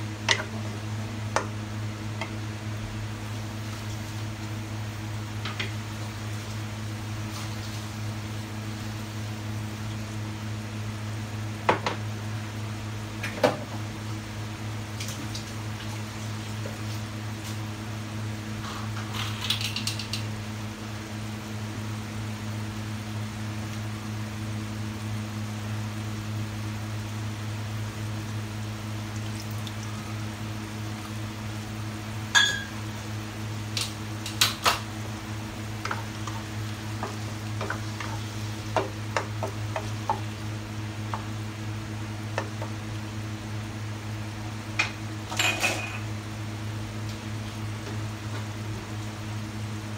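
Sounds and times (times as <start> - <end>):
steady low hum: 0.0 - 49.9
pan bubbling with pops: 28.3 - 33.0, 33.7 - 41.4.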